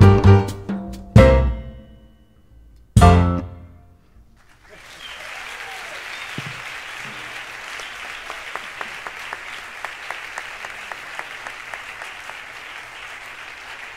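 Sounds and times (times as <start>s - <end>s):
audience applauding: 4.4s - 13.9s
rhythmic single claps: 4.4s - 13.9s.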